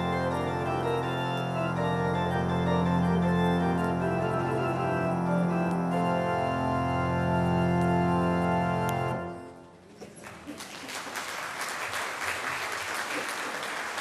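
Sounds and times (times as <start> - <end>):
pipe organ chord: 0.0 - 9.8
applause: 10.0 - 14.0.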